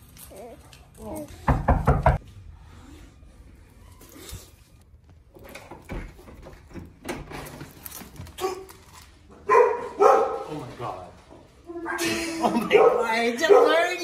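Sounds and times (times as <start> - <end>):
knocks at front door: 1.4 - 2.2
dog barking loudly: 9.5 - 10.5, 12.7 - 14.0.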